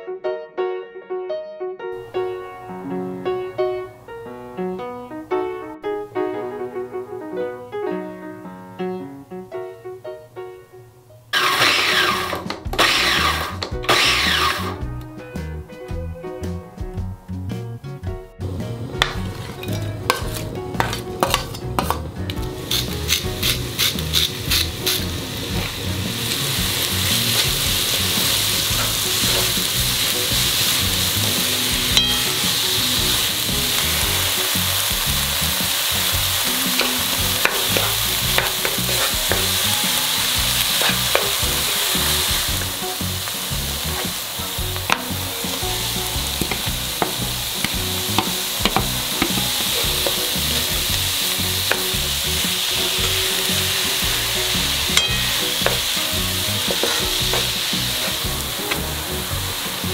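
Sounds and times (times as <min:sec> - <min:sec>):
vegetables sizzling in a pan: 0:11.3 - 0:14.8, 0:18.6 - 0:59.9
wooden spoon scraping a pan: 0:11.4 - 0:14.8, 0:19.0 - 0:35.6, 0:36.2 - 0:59.9.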